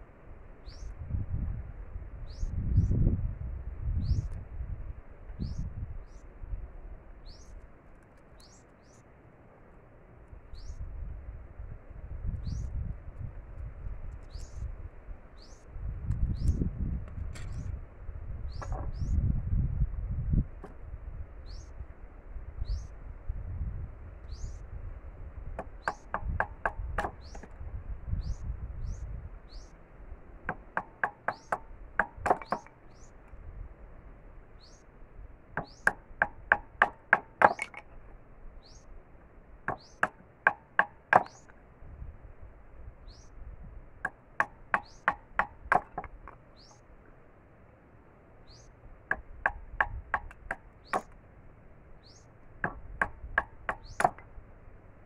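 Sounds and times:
bird chirping: 0.6 - 1.0, 7.2 - 7.6, 8.4 - 9.1, 10.5 - 10.8, 12.4 - 12.8, 15.4 - 15.7, 21.4 - 21.8, 24.3 - 24.7, 28.1 - 29.8, 34.6 - 34.9, 35.6 - 35.9, 38.6 - 39.0, 39.7 - 40.1, 43.0 - 43.4, 44.7 - 45.2, 46.5 - 46.9, 48.4 - 48.8, 52.0 - 52.4, 53.7 - 54.2.

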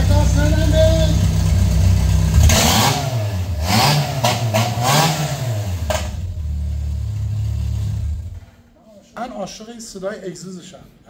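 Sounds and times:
car engine revving and idling: 0.0 - 8.6.

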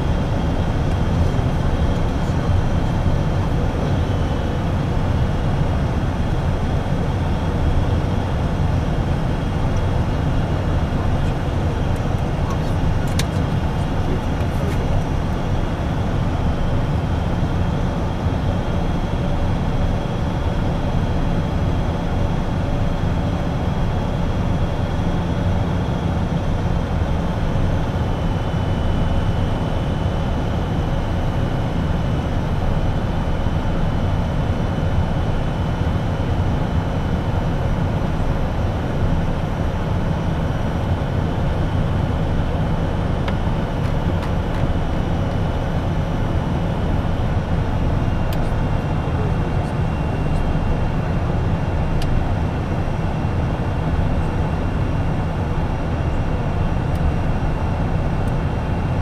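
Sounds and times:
jet engine whine: 0.0 - 59.0
cockpit airflow noise: 10.5 - 16.0.

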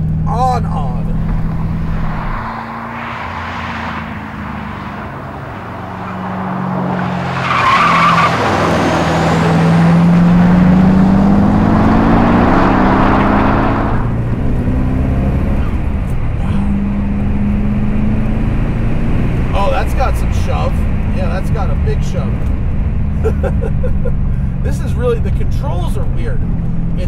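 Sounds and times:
turbocharged car engine accelerating: 0.0 - 27.0
tyre squeal: 7.2 - 9.5.

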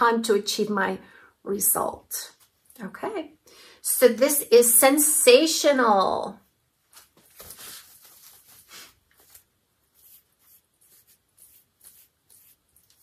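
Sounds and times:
wig rustling: 6.8 - 13.0.

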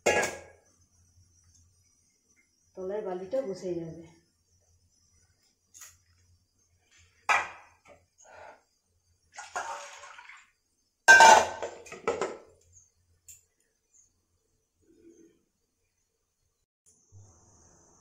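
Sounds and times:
water sloshing and pouring: 9.3 - 10.6
steel pots knocking: 11.1 - 12.4.

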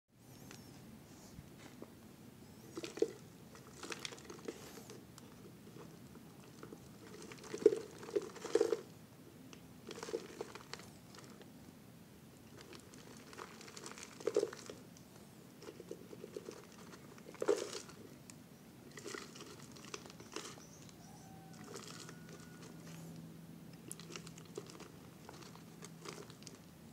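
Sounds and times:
soil crunching and rustling: 2.4 - 8.9, 9.8 - 11.5, 12.4 - 26.9
plastic bottle crinkling: 2.6 - 8.9, 12.5 - 14.8, 15.6 - 18.1, 18.9 - 23.1, 23.8 - 26.7.

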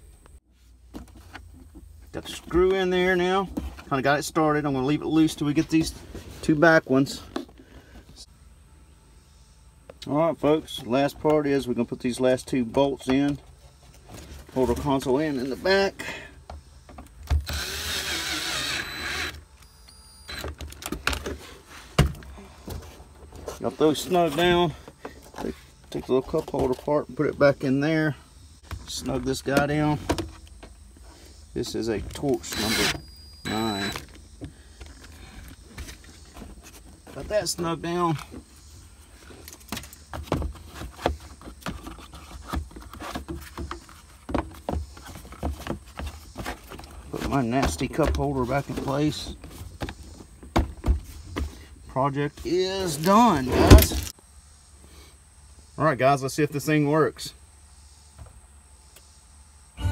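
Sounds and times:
cordless power driver running: 17.4 - 20.6, 32.4 - 34.1.

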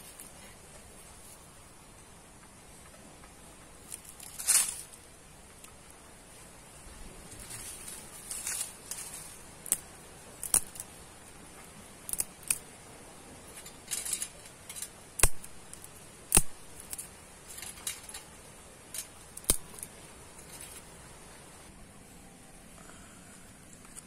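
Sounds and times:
rustling twigs and dry leaves: 0.0 - 21.7
dry twigs snapping: 3.8 - 6.0, 7.4 - 11.0, 11.6 - 12.8, 13.4 - 20.9.

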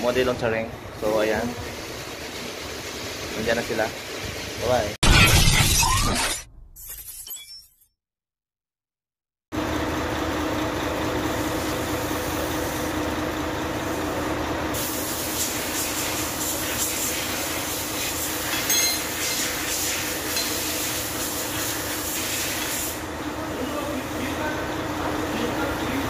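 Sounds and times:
machinery hum with hiss: 11.1 - 26.0.

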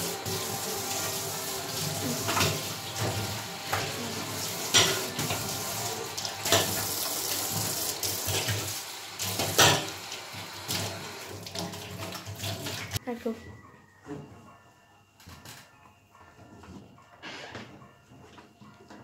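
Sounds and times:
cloth rinsing basin: 0.0 - 13.0
tap water running into sink: 0.0 - 13.0.

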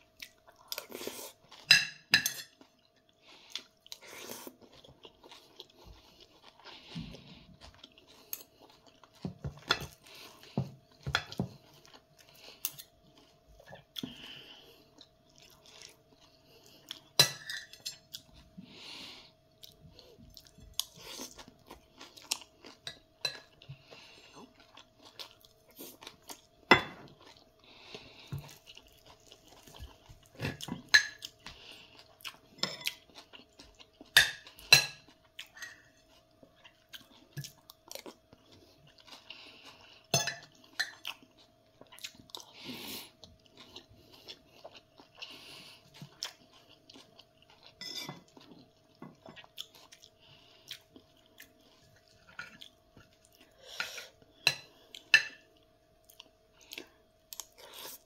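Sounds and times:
chewing and mouth sounds: 0.1 - 1.7, 19.5 - 58.0
cutlery clinking on a plate: 1.6 - 2.6, 17.2 - 18.0, 40.1 - 41.0, 47.8 - 48.3.

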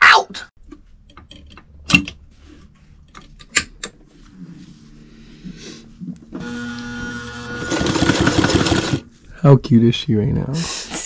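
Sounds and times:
sewing machine motor running: 6.4 - 9.1.

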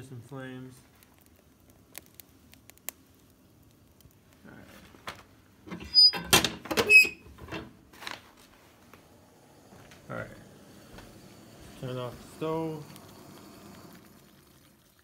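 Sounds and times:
short squeak: 5.8 - 7.2.

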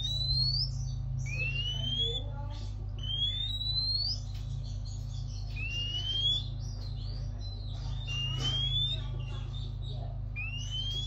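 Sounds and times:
steady low hum: 0.0 - 11.0
bird rising whistle: 3.0 - 4.2.

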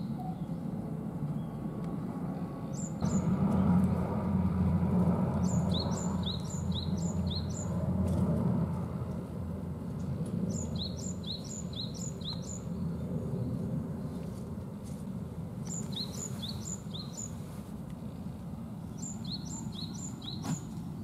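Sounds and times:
songbird chirping: 0.0 - 3.7, 5.3 - 7.8, 10.0 - 14.4, 15.6 - 21.0.

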